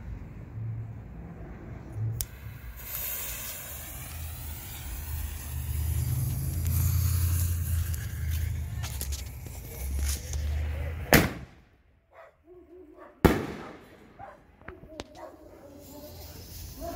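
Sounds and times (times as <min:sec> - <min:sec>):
steady low rumble: 0:00.0 - 0:11.9
fuse hissing: 0:02.2 - 0:10.0.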